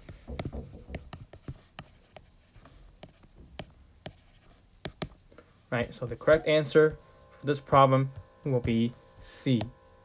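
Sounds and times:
stylus tapping on glass screen: 0.0s - 2.2s.

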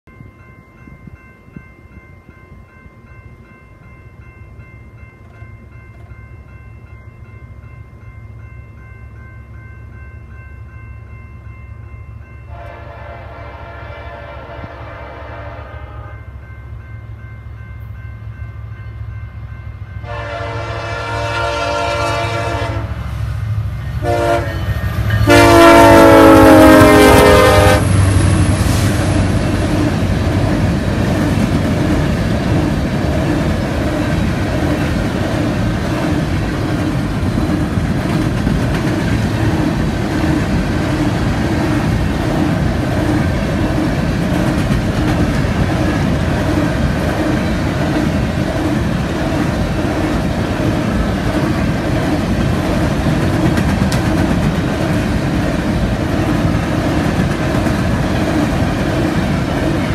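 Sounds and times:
locomotive engines and train rumble: 0.0s - 59.9s
train horn blasts: 12.5s - 16.4s, 20.0s - 23.2s, 23.8s - 28.5s.

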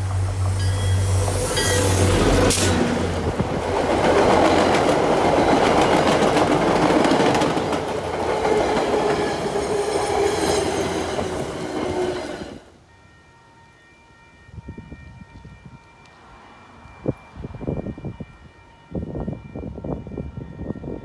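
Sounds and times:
train coaches rumbling past: 0.0s - 21.0s
wheels clicking over rail joints: 2.4s - 10.3s.

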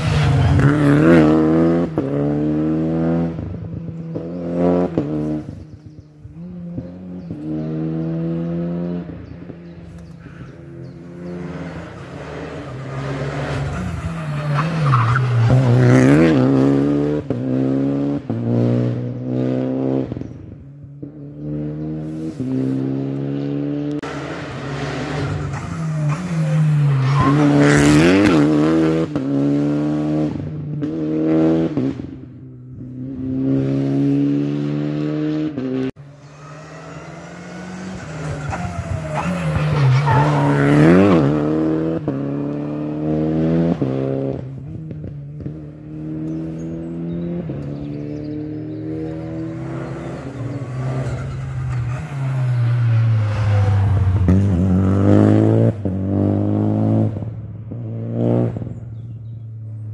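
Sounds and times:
rally cars passing: 0.0s - 59.9s.

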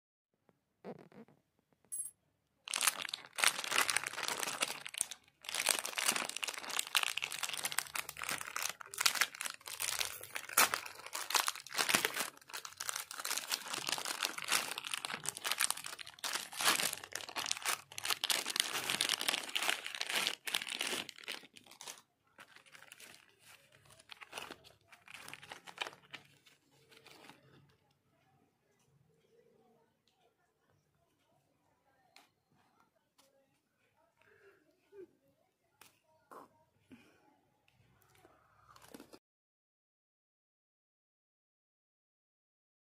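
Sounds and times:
plastic wrapper crinkling: 2.7s - 27.7s.

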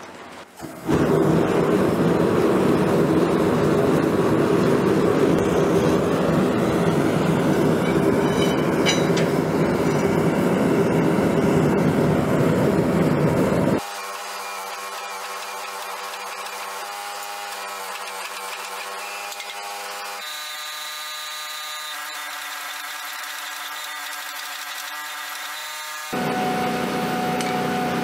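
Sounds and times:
gas forge burner lighting: 0.0s - 13.8s, 26.2s - 28.0s
burner rushing noise: 0.6s - 13.8s.

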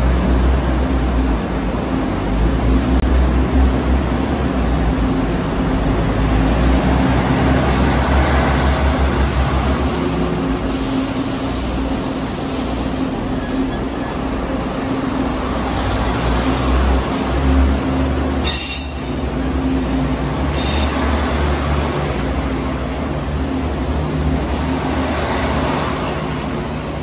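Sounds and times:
diesel train engine humming: 0.0s - 27.0s
high-pitched hiss and squeal: 10.6s - 14.9s.

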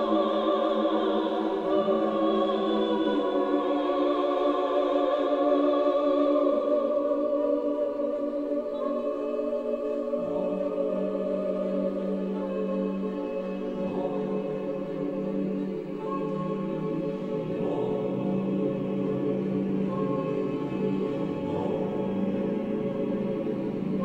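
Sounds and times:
choir singing held chords: 0.0s - 24.0s.

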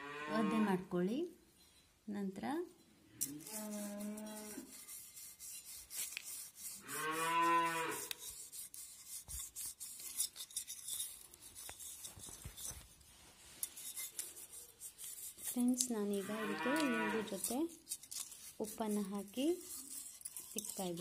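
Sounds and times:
cow mooing: 0.0s - 0.8s, 6.8s - 8.0s, 16.2s - 17.3s
lemon scrubbing copper tumbler: 3.4s - 6.8s, 7.9s - 12.9s, 13.5s - 21.0s.

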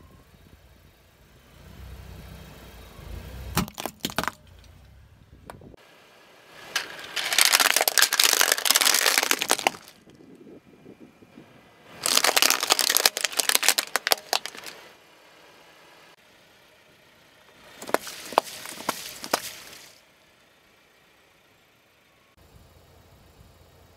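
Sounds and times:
juice cartons bursting: 3.6s - 4.4s, 6.7s - 10.2s, 12.0s - 14.8s, 17.8s - 20.0s
plastic toys cracking under tyre: 3.6s - 4.5s, 6.7s - 10.2s, 12.0s - 14.8s, 17.8s - 19.9s.

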